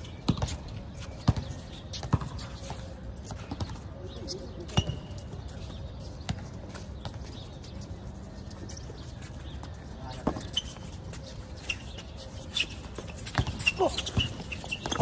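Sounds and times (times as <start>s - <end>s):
basketball bouncing on concrete: 0.2s - 2.5s, 13.2s - 15.0s.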